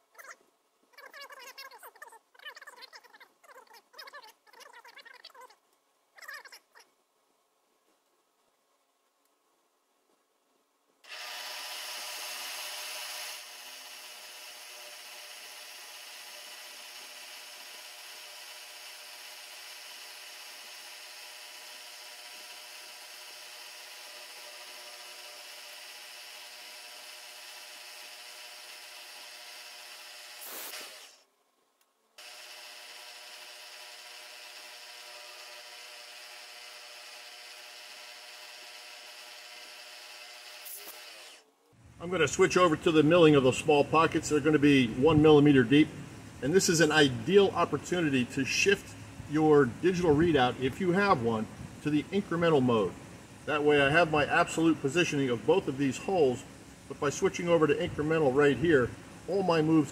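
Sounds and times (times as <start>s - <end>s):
milling machine drilling metal: 11.1s - 31.2s, 32.2s - 41.4s.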